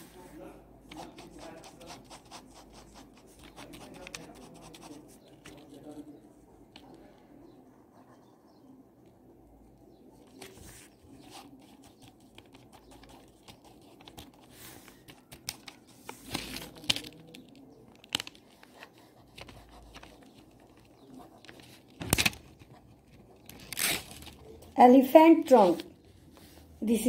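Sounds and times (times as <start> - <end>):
pen scratching on paper: 0.8 - 5.8, 10.4 - 16.8, 18.4 - 24.4
paper rustling: 10.2 - 24.6.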